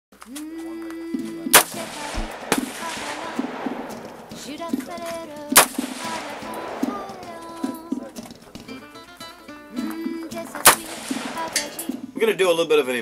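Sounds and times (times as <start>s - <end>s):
background music: 1.0s - 12.3s
rifle shots with echo: 1.5s - 8.9s, 10.6s - 12.1s.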